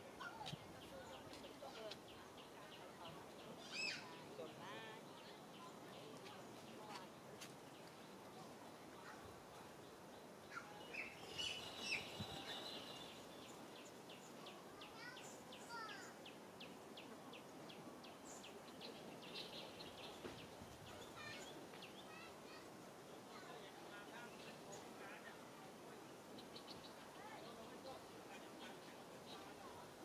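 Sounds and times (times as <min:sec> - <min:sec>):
bird chirps: 0:10.5 - 0:14.3.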